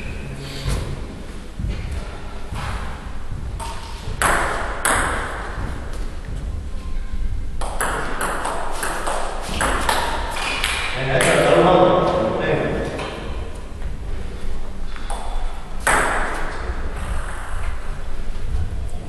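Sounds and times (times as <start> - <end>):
table tennis ball hits: 3.6 - 6.0, 7.6 - 11.5, 15.1 - 17.6.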